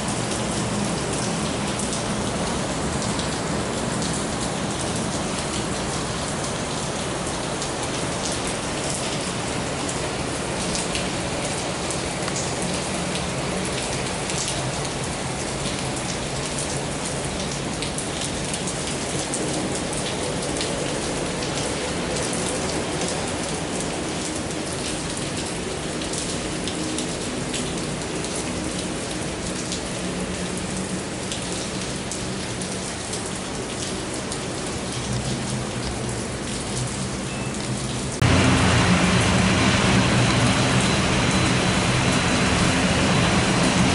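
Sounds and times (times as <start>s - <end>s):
heavy rain: 0.0s - 43.9s
faint low aircraft engine hum: 38.2s - 43.9s.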